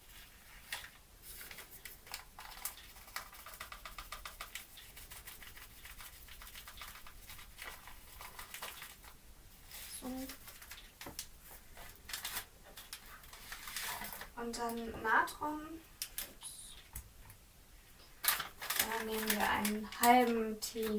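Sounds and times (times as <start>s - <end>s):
paper rustling: 0.0s - 14.8s, 18.1s - 20.9s
spoon scratching in paper sachet: 0.5s - 10.9s, 18.2s - 20.3s.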